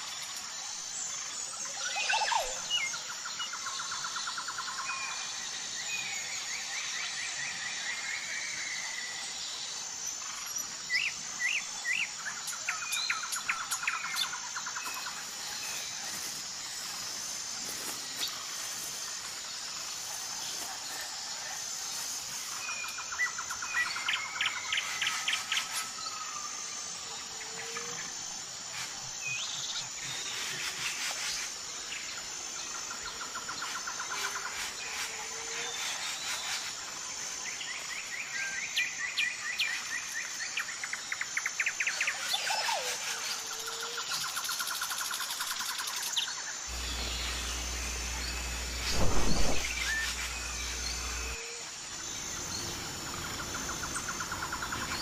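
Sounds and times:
pulsing insect chorus: 0.0 - 55.0
birds calling in trills: 41.8 - 51.5.

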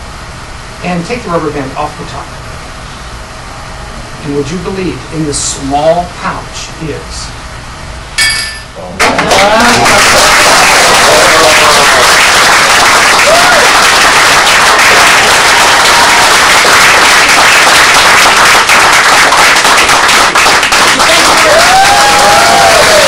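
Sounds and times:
audience applauding: 9.0 - 23.0.

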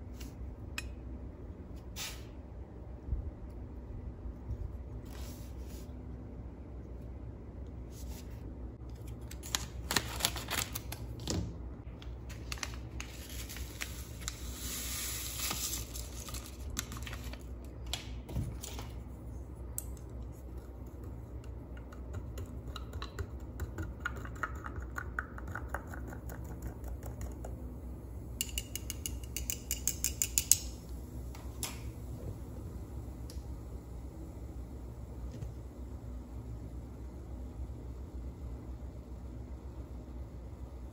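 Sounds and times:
clicks and taps: 21.0 - 27.5.

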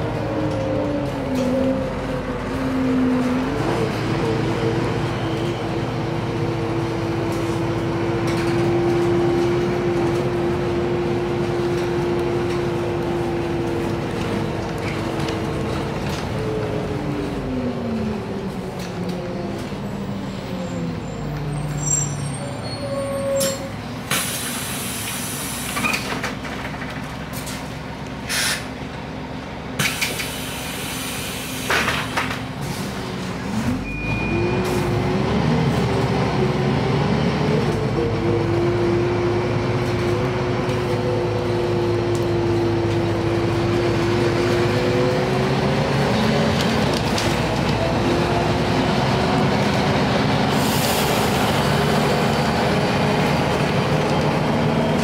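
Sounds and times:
bus engine and transmission: 0.0 - 55.0
compressed air hissing: 28.3 - 28.7.

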